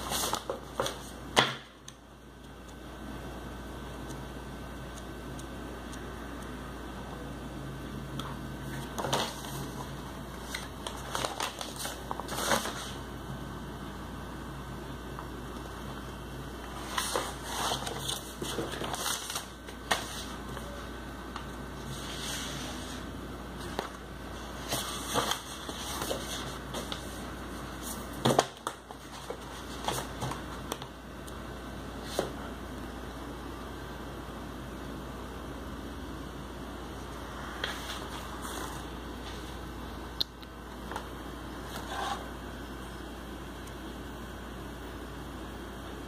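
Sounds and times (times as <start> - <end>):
paper rustling: 0.0 - 1.2, 8.6 - 13.0, 16.6 - 30.8, 37.6 - 39.6
book pages turning: 0.0 - 1.5, 8.2 - 13.0, 16.6 - 30.8, 37.5 - 39.6.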